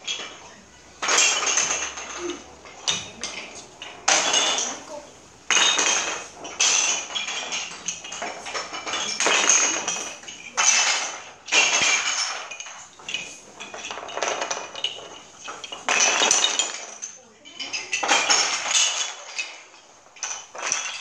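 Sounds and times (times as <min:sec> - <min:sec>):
wooden sticks clattering on floor: 0:00.0 - 0:21.0.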